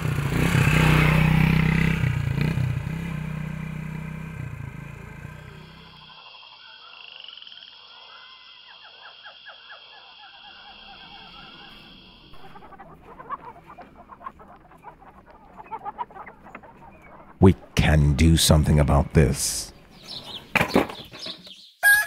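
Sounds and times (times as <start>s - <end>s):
croaking calls: 5.5s - 22.0s.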